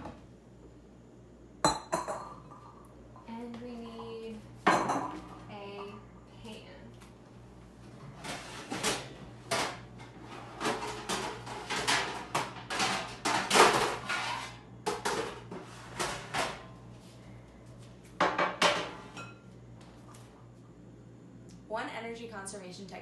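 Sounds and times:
metal pans clattering and scraping: 8.0 - 16.7, 18.2 - 19.4.

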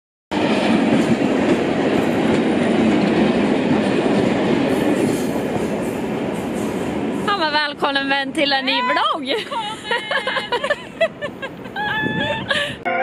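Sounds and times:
freight train wheels clattering: 0.3 - 8.0.

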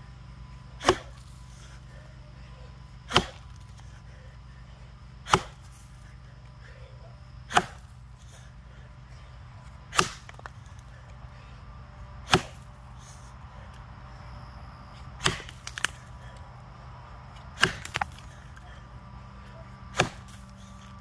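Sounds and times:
axe chopping into log: 0.8 - 1.3, 3.1 - 3.7, 5.2 - 5.8, 7.5 - 7.9, 9.9 - 10.6, 12.2 - 12.7, 15.2 - 16.0, 17.6 - 18.4, 19.9 - 20.5.

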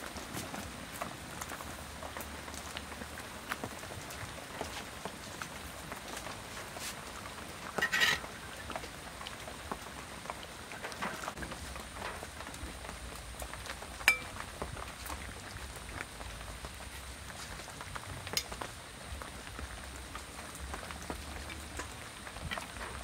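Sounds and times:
soup boiling and bubbling: 0.2 - 23.0
sharp ringing clink: 14.1 - 14.3.

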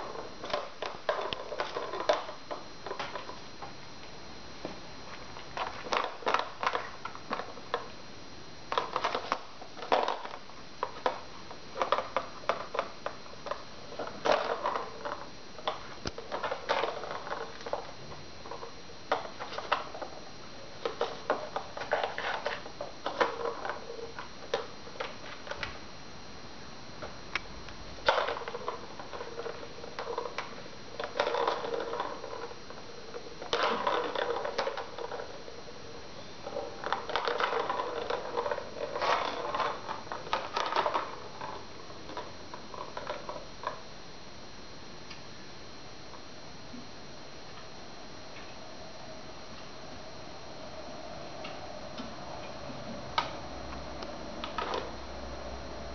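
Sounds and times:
plastic ball toy clicking and rattling: 28.1 - 32.6.

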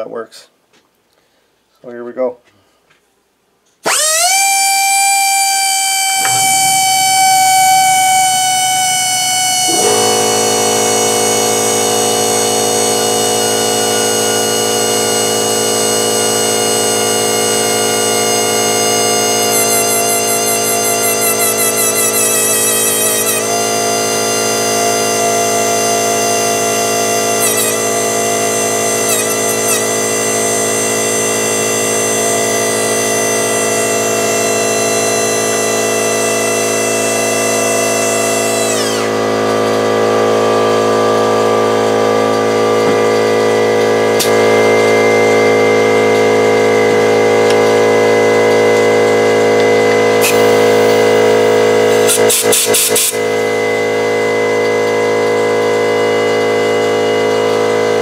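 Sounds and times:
die grinder whining: 3.8 - 58.0
low steady hum: 6.2 - 14.5.

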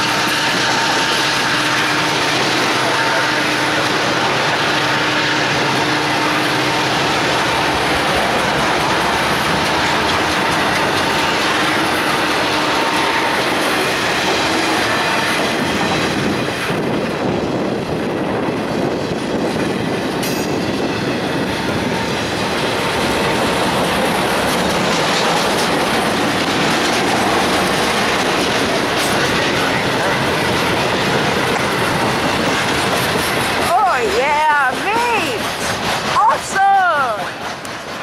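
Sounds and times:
steel wheels on rails: 0.0 - 38.0.

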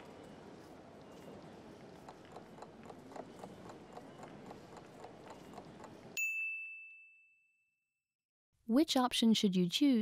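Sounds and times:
timer ticking: 1.0 - 6.2
bell ding: 6.2 - 7.8.

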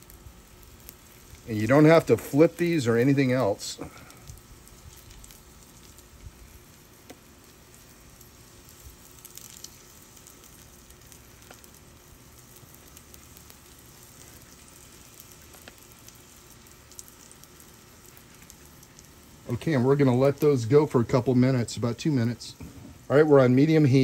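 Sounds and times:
oil sizzling on a griddle: 0.0 - 24.0
small oil pops: 7.0 - 7.3, 9.1 - 11.8, 14.2 - 16.2.

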